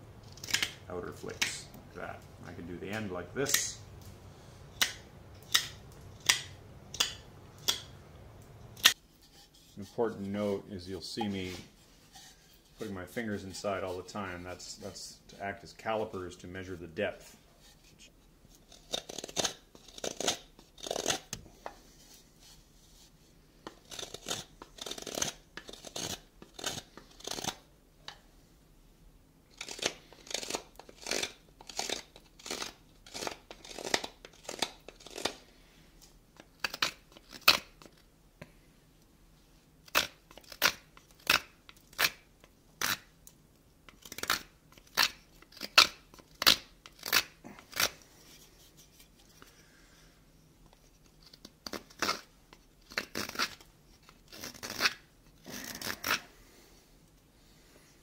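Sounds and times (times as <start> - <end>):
knife shaving wood: 18.6 - 21.4, 23.6 - 27.7, 29.5 - 35.6, 36.4 - 38.1, 39.9 - 43.1, 43.9 - 49.9, 50.7 - 56.3.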